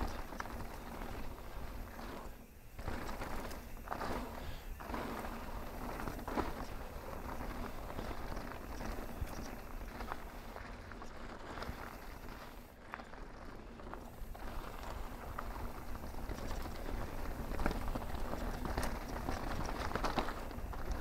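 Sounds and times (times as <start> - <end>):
bike rattling: 0.0 - 21.0
tyres crunching over rocks: 0.0 - 21.0.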